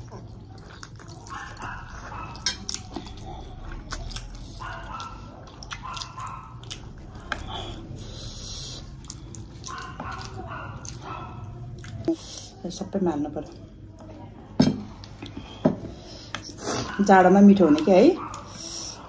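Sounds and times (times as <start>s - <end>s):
wet chewing and slurping: 0.0s - 12.5s.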